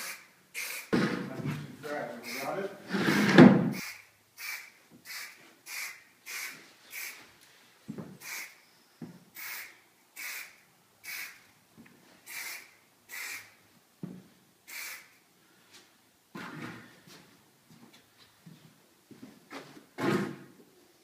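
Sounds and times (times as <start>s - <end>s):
aerosol spray hisses: 0.0s - 0.9s, 3.8s - 7.2s, 8.2s - 8.6s, 9.4s - 11.4s, 12.3s - 13.5s, 14.7s - 15.1s.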